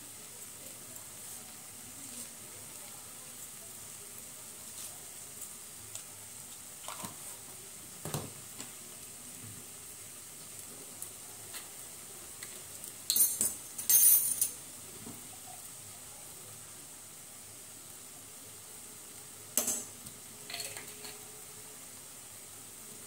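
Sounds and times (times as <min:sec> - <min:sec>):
sauce sizzling in hot pan: 0:00.0 - 0:23.0
metal spoon clattering into pan: 0:13.1 - 0:14.6, 0:19.6 - 0:19.9, 0:20.5 - 0:21.2
bottles and utensils clicking: 0:20.5 - 0:21.2.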